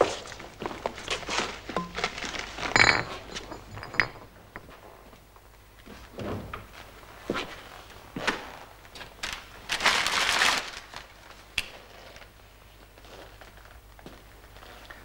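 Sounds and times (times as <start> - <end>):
handling knocks and rustles: 0.0 - 5.2.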